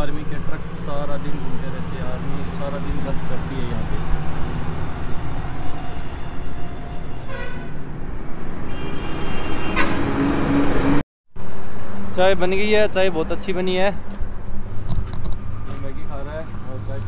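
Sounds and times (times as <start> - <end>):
trucks engine rumble: 0.0 - 17.0
vehicle horn: 6.0 - 7.8, 8.6 - 10.7.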